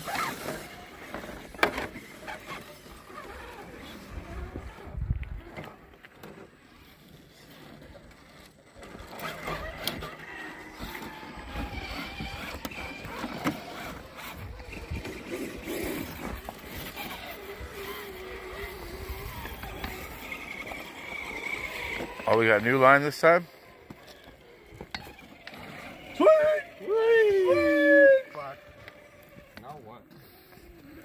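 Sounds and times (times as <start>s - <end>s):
rc car motors whining: 0.0s - 31.0s.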